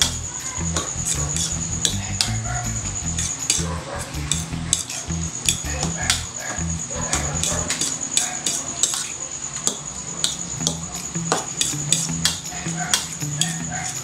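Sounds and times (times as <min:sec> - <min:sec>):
fork clinking against bowl: 0:11.6 - 0:14.0.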